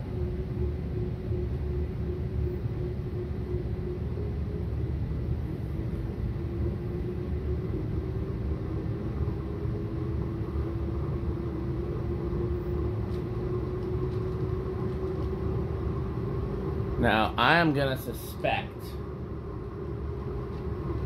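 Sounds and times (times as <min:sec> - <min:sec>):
ceiling fan motor hum: 0:00.0 - 0:21.0
space heater rumble: 0:00.0 - 0:21.0.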